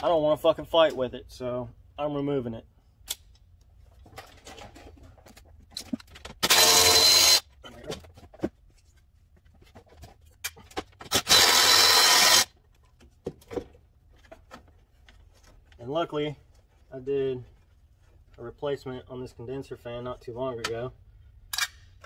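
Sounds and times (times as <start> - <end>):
electric ratchet spinning: 6.4 - 7.4, 11.1 - 12.5.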